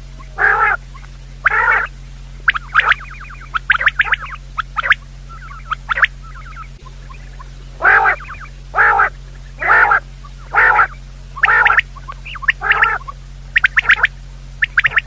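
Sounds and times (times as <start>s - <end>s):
quail calls: 0.0s - 15.0s
steady low hum: 0.0s - 15.0s.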